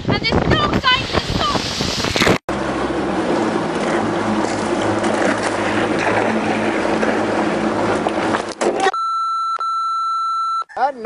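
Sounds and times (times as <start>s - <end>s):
wind and water rushing: 0.0s - 8.8s
outboard motor running: 2.0s - 8.9s.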